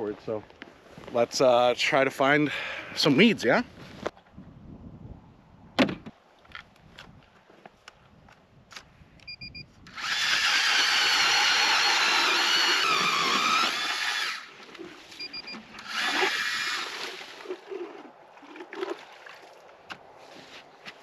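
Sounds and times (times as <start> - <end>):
short beeps: 9.2 - 9.7, 15.2 - 15.6
ice auger motor whine: 9.9 - 14.5, 15.8 - 16.9.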